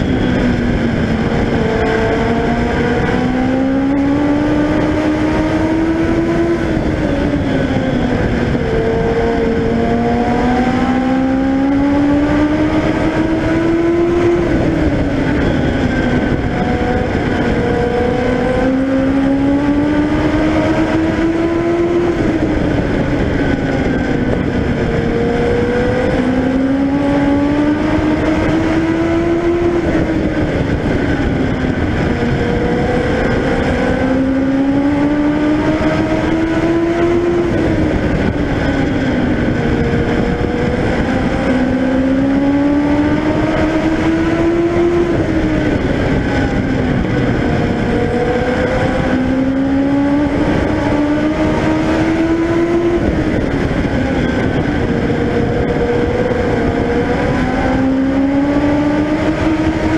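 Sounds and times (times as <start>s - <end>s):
race car engine: 0.0s - 59.9s
road and wind noise: 0.0s - 59.9s.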